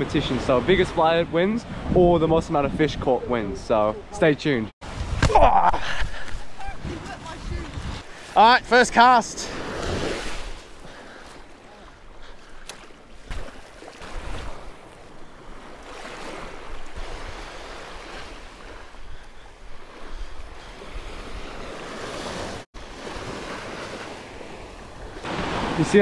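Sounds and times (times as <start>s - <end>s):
wind on microphone: 0.8s - 4.2s, 4.8s - 8.1s
waves washing onto sand: 5.8s - 26.0s.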